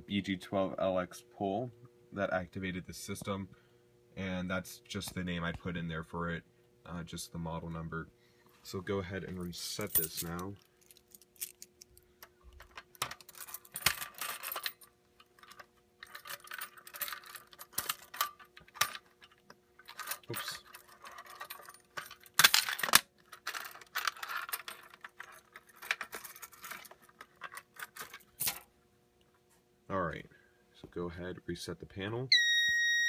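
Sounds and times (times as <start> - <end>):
faint steady hum: 0.0 - 33.0
keys jangling: 9.8 - 11.7, 12.6 - 28.6.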